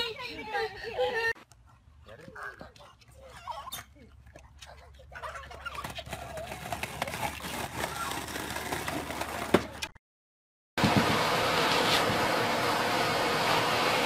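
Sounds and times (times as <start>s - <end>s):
skateboard wheels rolling on concrete: 5.2s - 10.0s, 10.8s - 12.7s.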